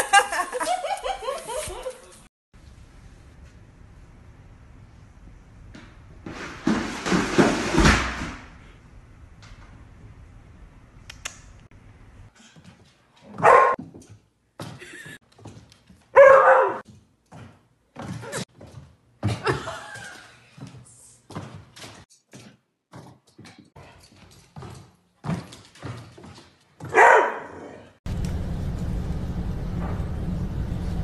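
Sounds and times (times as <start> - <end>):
dog barking: 13.4 - 13.8, 16.2 - 16.8, 26.8 - 27.9.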